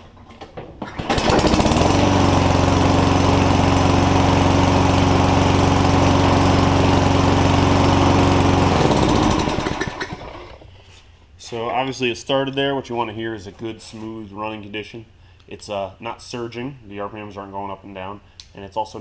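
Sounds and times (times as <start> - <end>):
lawn mower engine running: 0.8 - 10.7.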